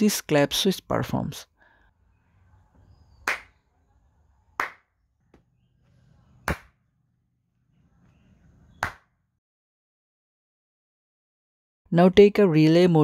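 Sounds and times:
hand claps: 3.2s - 3.5s, 4.6s - 5.4s, 6.4s - 6.8s, 8.8s - 9.1s.

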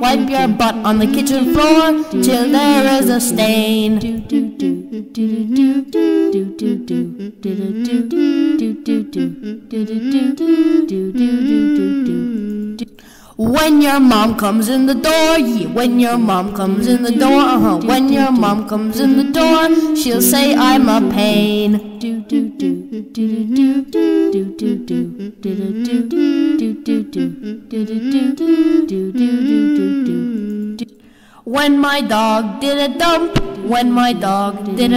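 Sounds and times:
person humming a melody: 0.0s - 31.0s.

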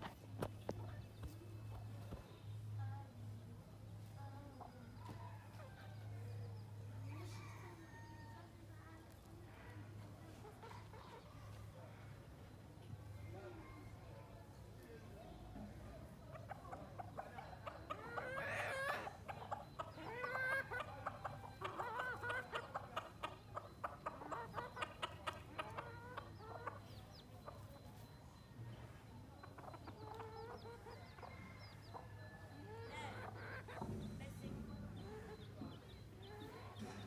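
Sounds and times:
chickens clucking: 0.0s - 37.0s.

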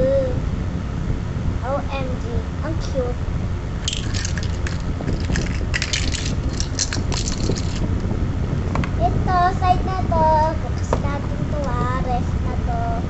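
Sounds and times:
child's sing-song voice: 0.0s - 0.4s, 1.6s - 3.2s, 9.0s - 13.0s
plastic toy crinkling and rustling: 3.8s - 7.9s
low rumble: 3.8s - 8.3s.

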